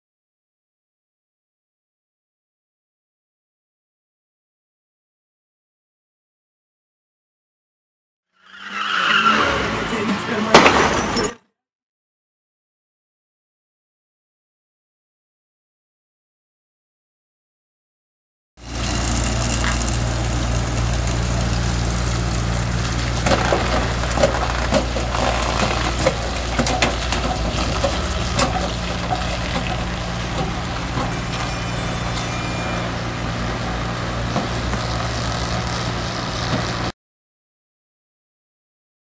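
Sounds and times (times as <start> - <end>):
truck engine humming: 18.6 - 36.9
car body cracking and crunching: 22.9 - 31.1.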